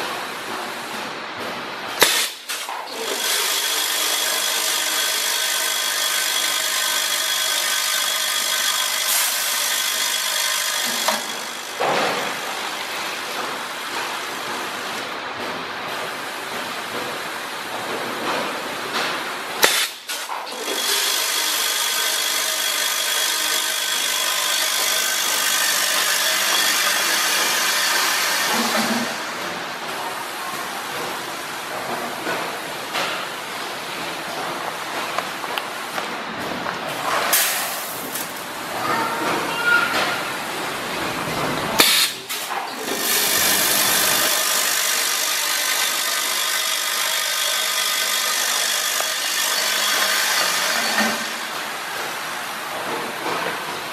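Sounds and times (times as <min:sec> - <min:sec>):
filling machine whining: 0:03.0 - 0:12.8, 0:20.6 - 0:29.0, 0:42.8 - 0:51.8.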